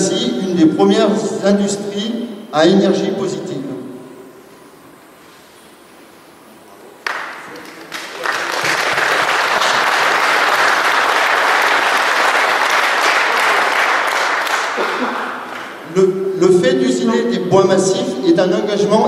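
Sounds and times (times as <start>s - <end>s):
audience applauding: 7.0s - 15.8s.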